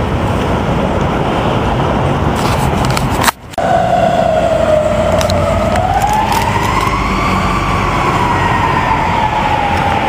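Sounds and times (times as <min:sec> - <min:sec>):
road traffic noise: 0:00.0 - 0:10.0
emergency vehicle siren wailing: 0:03.6 - 0:10.0.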